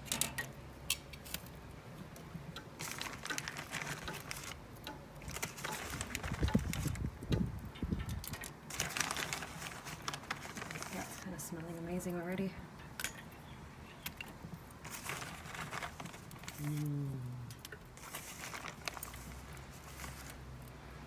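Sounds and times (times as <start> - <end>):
metal tongs clinking on grill grate: 0.0 - 1.3, 12.8 - 13.4.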